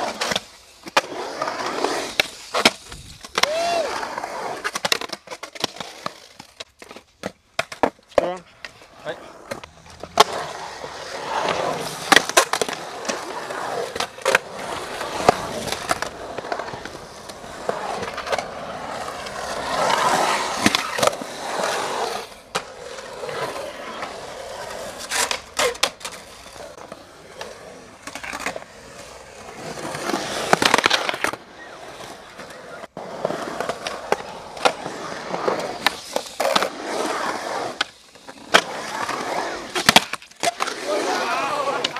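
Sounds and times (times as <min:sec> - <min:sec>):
skateboard wheels rolling on concrete: 0:00.0 - 0:41.9
skateboard clacks: 0:09.5 - 0:21.2, 0:37.6 - 0:41.9.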